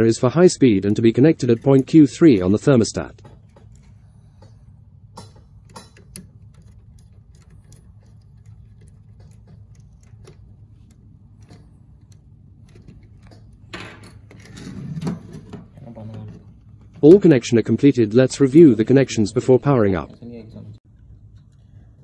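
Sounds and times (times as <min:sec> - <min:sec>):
low steady hum: 0:00.0 - 0:22.0
screwdriver clicks and taps: 0:00.9 - 0:13.7.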